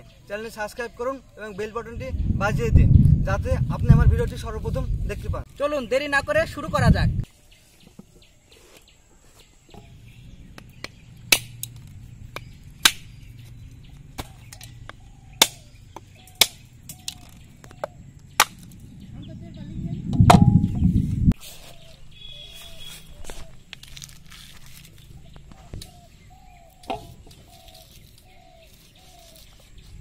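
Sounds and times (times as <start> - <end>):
knife striking coconut: 15.3 - 16.6.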